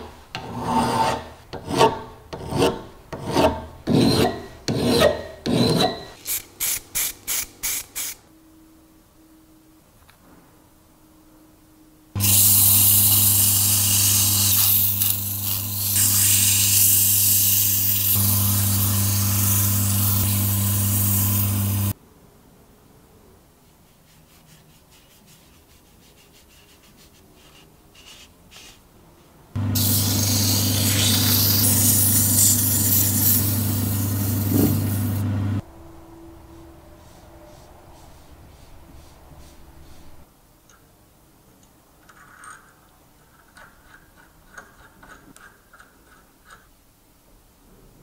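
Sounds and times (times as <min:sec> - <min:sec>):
sandpaper scraping spinning wood: 0:12.2 - 0:22.0, 0:23.9 - 0:28.8, 0:29.8 - 0:35.2, 0:37.0 - 0:40.3.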